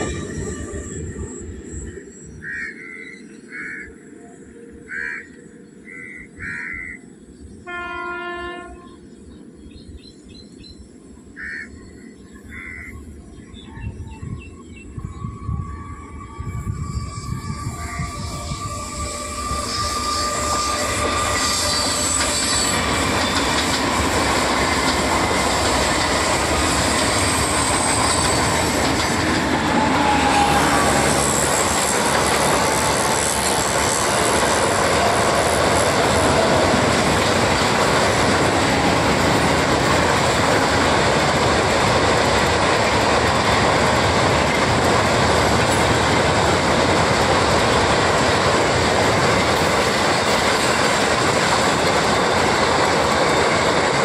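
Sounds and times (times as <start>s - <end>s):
distant trains running: 0.0s - 54.0s
freight wagons clattering on rails: 20.3s - 54.0s.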